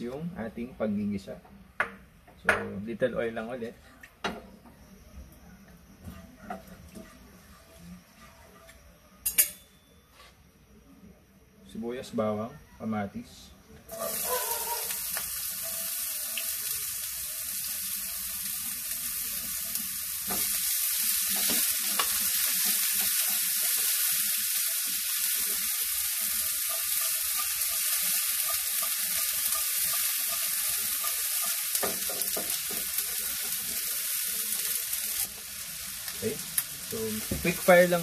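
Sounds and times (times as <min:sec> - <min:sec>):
spatula strokes against pan: 0:06.0 - 0:08.8
vegetables sizzling in frying pan: 0:13.8 - 0:38.0.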